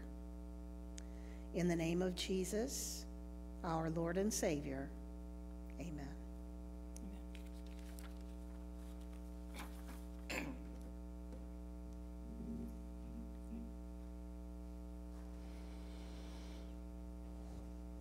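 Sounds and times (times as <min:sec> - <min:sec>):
electrical mains hum: 0:00.0 - 0:18.0
faint clicks and rustles: 0:07.0 - 0:11.4.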